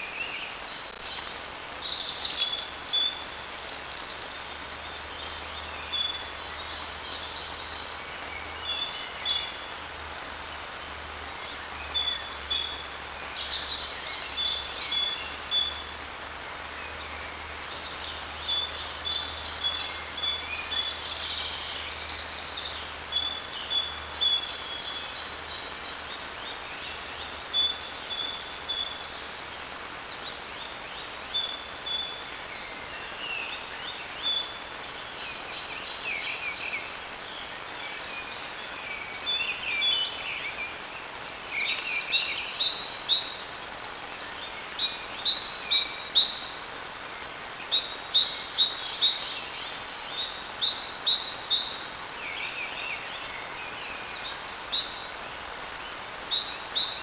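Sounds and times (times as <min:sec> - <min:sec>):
songbirds chirping and trilling: 0:00.0 - 0:57.0
steady microphone hiss: 0:00.0 - 0:57.0.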